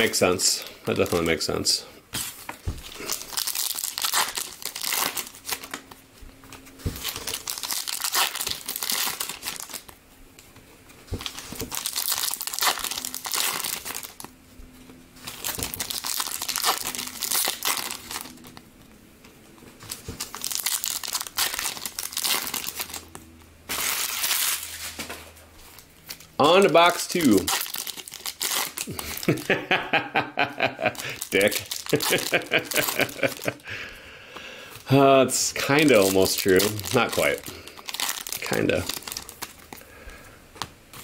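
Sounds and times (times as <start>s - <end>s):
foil wrappers crinkling and tearing: 2.2s - 10.0s, 11.1s - 14.4s, 15.2s - 18.7s, 19.7s - 29.6s, 30.8s - 33.6s, 34.7s - 39.9s.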